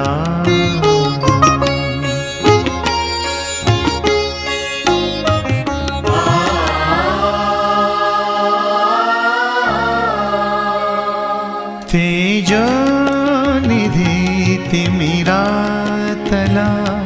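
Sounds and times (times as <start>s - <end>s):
tabla: 0.0s - 7.7s, 11.9s - 17.0s
plucked string notes: 0.0s - 8.3s
sliding melodic line: 0.5s - 17.0s.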